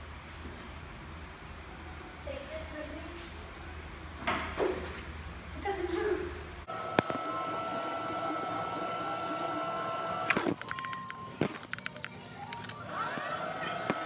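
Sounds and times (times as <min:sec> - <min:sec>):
short high chirps: 0:10.6 - 0:12.2.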